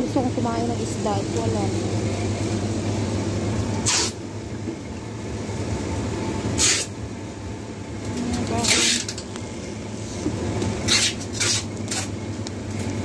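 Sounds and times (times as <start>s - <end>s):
refrigeration units humming: 0.0s - 13.0s
short hissing bursts: 3.8s - 4.2s.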